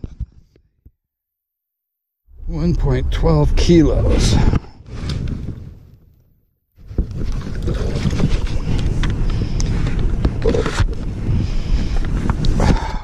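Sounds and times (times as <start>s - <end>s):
wind buffeting microphone: 2.3s - 6.1s, 6.8s - 13.0s.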